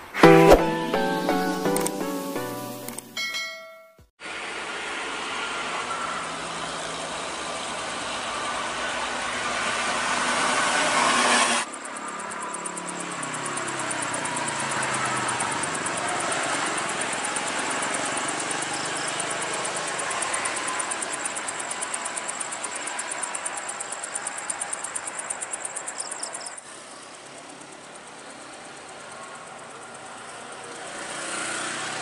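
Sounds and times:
traffic passing: 0:04.4 - 0:21.8, 0:26.6 - 0:32.0
vehicle engine moving off: 0:05.2 - 0:23.8.

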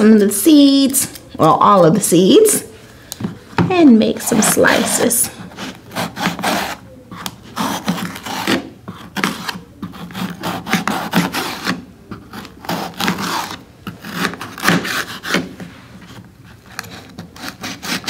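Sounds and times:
knife slicing pepper: 0:05.4 - 0:15.5.

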